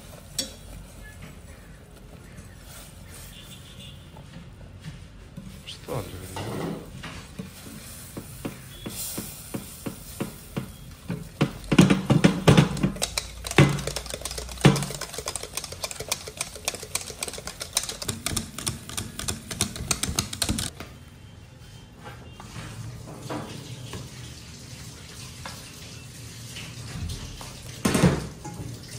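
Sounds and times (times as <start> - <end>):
kitchen utensils clicking and tapping: 8.1 - 20.7.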